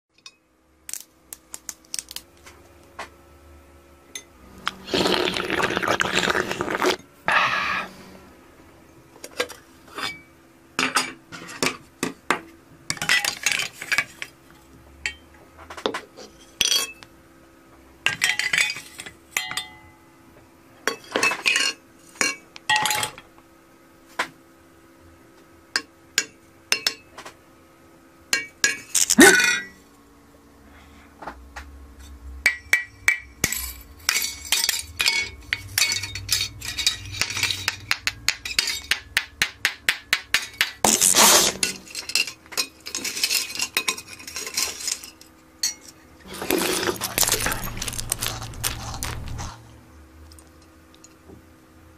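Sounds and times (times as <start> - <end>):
liquid pouring: 4.7 - 7.0.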